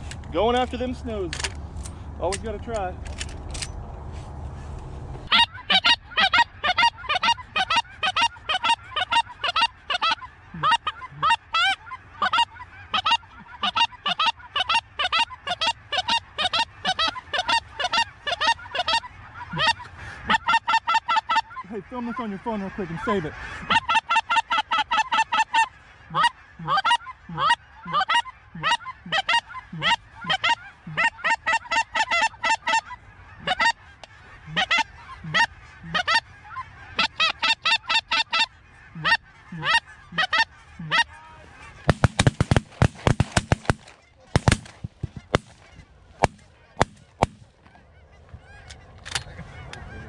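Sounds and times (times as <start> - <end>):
geese honking: 4.6 - 50.0
suppressed shotgun shots: 41.9 - 47.5.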